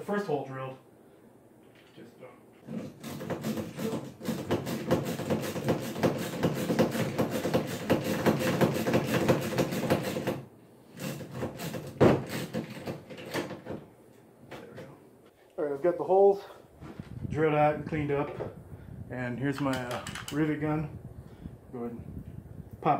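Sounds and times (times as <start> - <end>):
hand drill rasping through plastic: 2.6 - 13.8.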